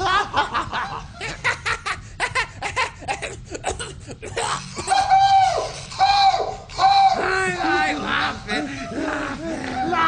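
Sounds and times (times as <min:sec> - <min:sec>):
men laughing: 0:00.0 - 0:05.6, 0:07.2 - 0:10.0.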